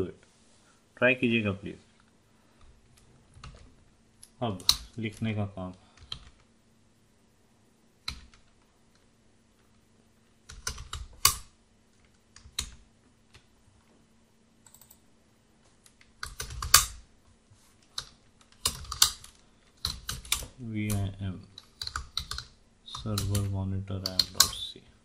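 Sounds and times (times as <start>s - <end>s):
faint steady hum: 0.0s - 25.0s
computer keyboard typing: 6.0s - 6.4s, 10.5s - 11.4s, 14.6s - 15.0s, 16.1s - 16.9s, 18.0s - 24.6s.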